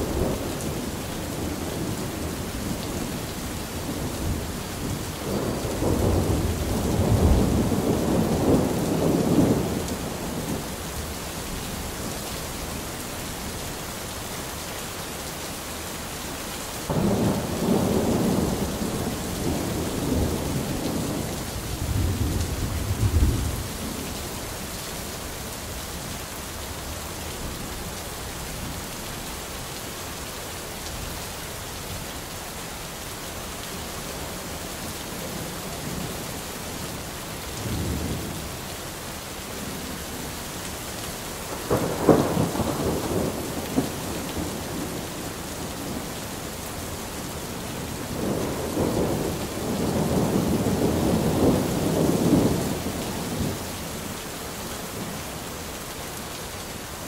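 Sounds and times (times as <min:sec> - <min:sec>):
steady rain hiss: 0:00.0 - 0:57.0
rolling thunder: 0:03.9 - 0:10.6, 0:16.9 - 0:23.8, 0:41.6 - 0:46.1, 0:48.0 - 0:53.6.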